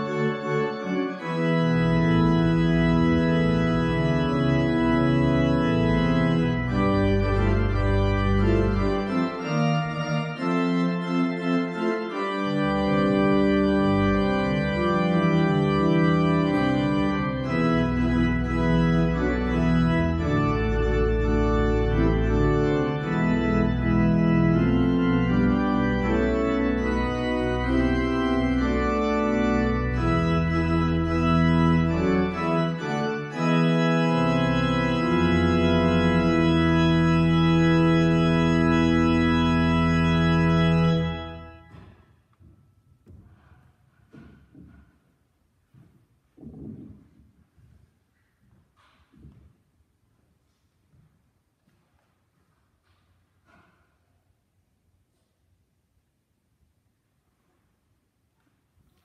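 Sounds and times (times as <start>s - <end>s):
deep organ pedal bass: 0.0s - 41.7s
church organ chords: 0.0s - 42.0s.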